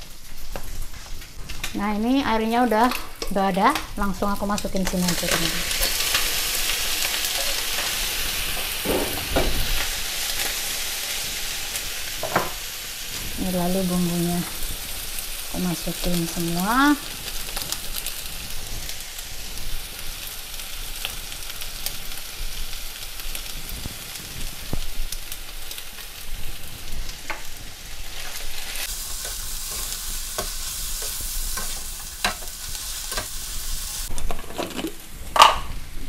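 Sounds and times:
food sizzling in a frying pan: 0.0s - 36.0s.

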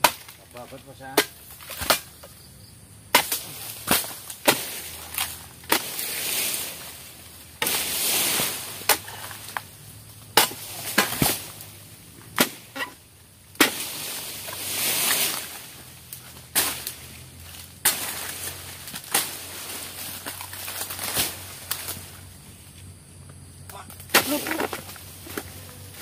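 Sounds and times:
fronds rustling and falling: 0.0s - 2.4s, 3.1s - 23.0s, 23.6s - 26.0s
chisel chopping into palm: 8.8s - 9.7s, 10.3s - 11.6s, 12.3s - 12.7s, 13.6s - 14.0s, 24.0s - 25.5s.

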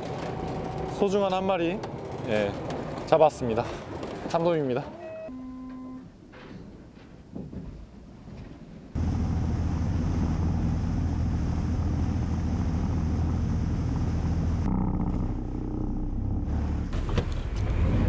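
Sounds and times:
boat engine droning: 9.0s - 17.2s.

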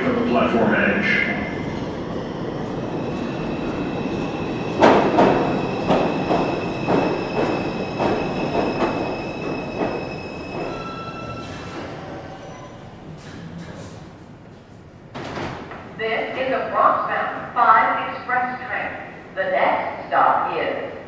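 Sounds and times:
train wheels clacking over rail joints: 4.8s - 10.9s
high brake squeal: 10.2s - 12.9s.

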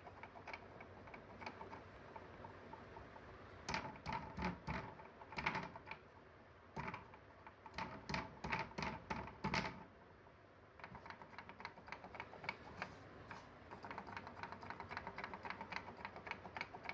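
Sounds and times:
wooden toy legs clicking on board: 0.0s - 6.1s, 6.8s - 9.9s, 10.8s - 16.9s.

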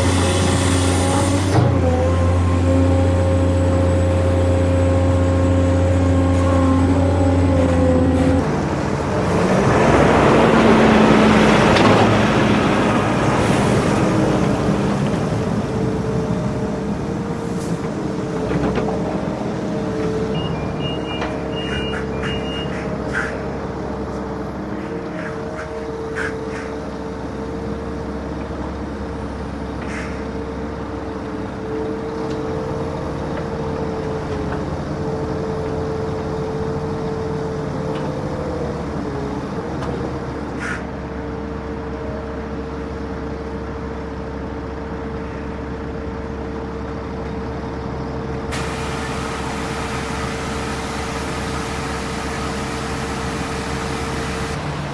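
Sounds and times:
heavy diesel engines running: 0.0s - 54.9s
high beeps: 20.4s - 22.7s.

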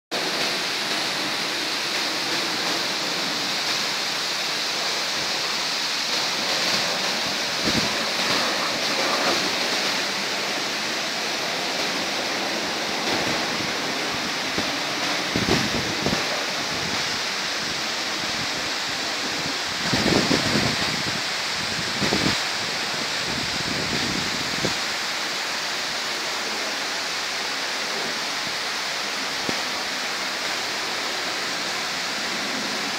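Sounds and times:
rushing water: 0.1s - 32.9s
wind buffeting microphone: 6.4s - 10.5s, 12.6s - 24.8s.

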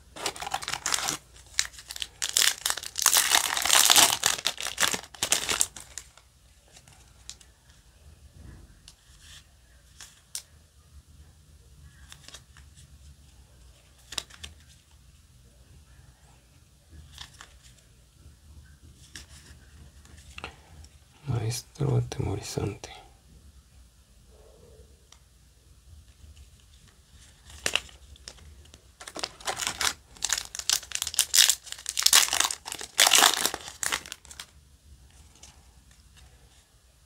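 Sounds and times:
cards being leafed through: 0.2s - 6.1s, 27.2s - 34.5s
foil pack being torn open: 0.2s - 6.1s, 29.0s - 34.5s.

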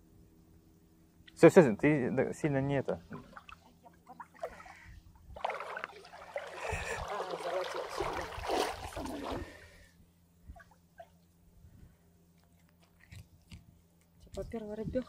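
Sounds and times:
wading through shallow water: 3.0s - 9.9s.

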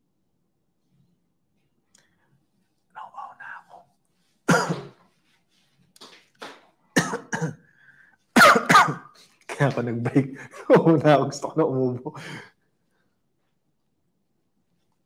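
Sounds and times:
man clearing his throat: 4.5s - 5.0s, 7.0s - 7.7s, 8.4s - 9.2s
man coughing: 4.5s - 5.0s, 7.0s - 7.7s, 8.4s - 9.2s.

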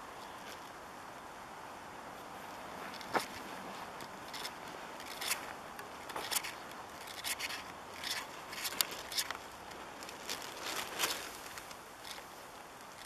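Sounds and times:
footsteps crunching on snow: 2.2s - 6.6s, 8.1s - 12.3s.

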